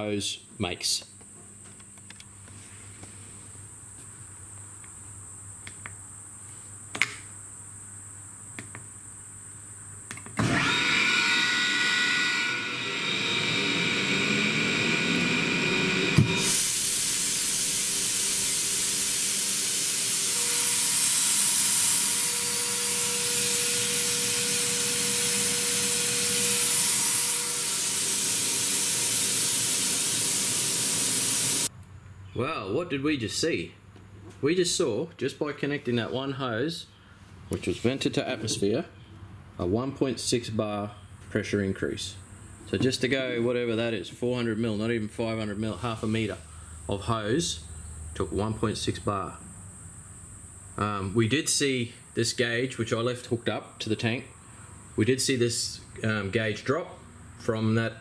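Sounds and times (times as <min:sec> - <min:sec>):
air compressor running: 0:10.4 - 0:31.7
compressed air hissing: 0:13.6 - 0:31.7.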